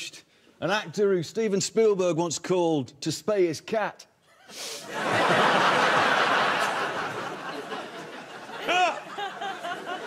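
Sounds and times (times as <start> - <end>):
studio audience laughing: 4.8 - 10.0.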